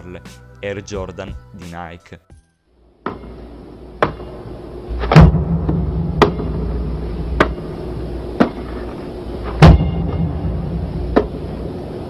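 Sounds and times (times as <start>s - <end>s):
low steady hum: 2.7s - 12.0s
basketball bouncing on hard floor: 5.0s - 6.6s, 9.6s - 10.4s.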